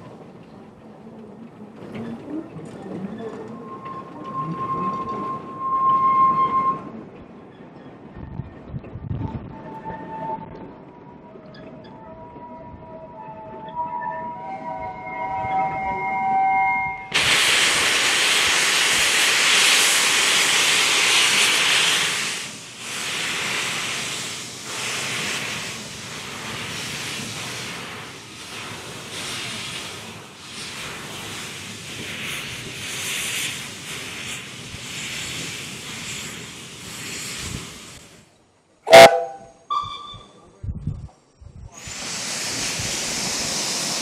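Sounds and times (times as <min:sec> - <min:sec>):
locomotive steam hissing: 0:16.1 - 0:38.3, 0:41.7 - 0:44.0.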